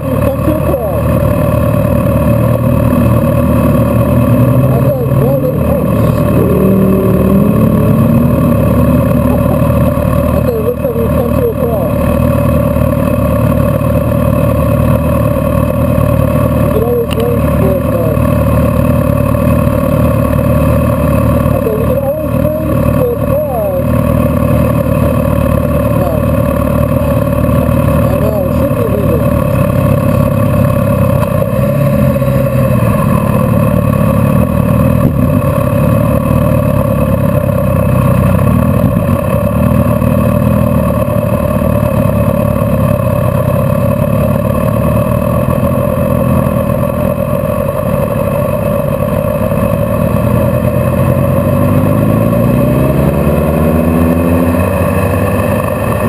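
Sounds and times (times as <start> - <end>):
vehicle engine accelerating: 0.0 - 56.0.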